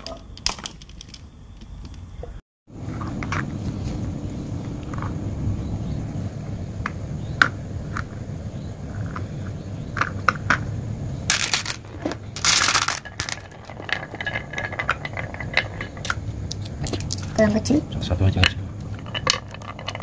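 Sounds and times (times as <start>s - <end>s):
scraping rushes: 11.3s - 16.9s.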